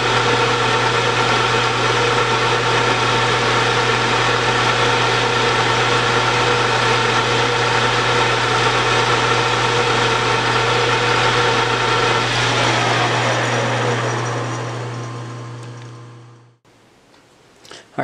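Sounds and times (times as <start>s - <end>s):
lathe cutting metal: 0.0s - 16.5s
metal lathe humming: 0.0s - 16.6s.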